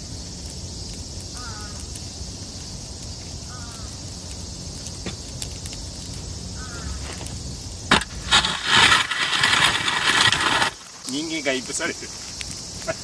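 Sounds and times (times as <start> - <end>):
fire crackling: 0.0 - 13.0
insects droning: 0.0 - 13.0
bird calling: 3.5 - 4.0, 6.6 - 7.1.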